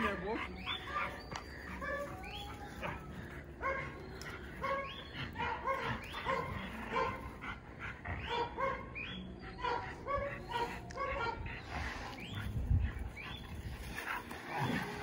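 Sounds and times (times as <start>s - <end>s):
dog yipping: 8.2s - 11.4s.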